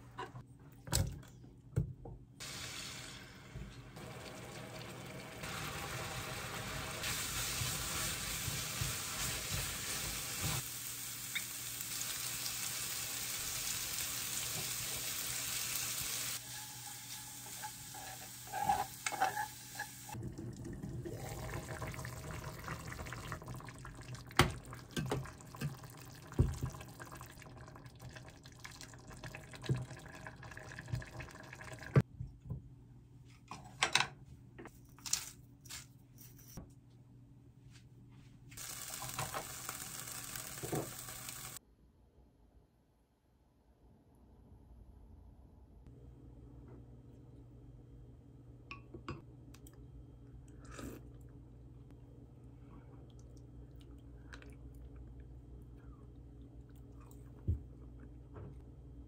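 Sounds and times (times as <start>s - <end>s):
food sizzling in a pan: 2.4s - 20.2s, 38.6s - 41.6s
broth being poured: 20.1s - 32.0s.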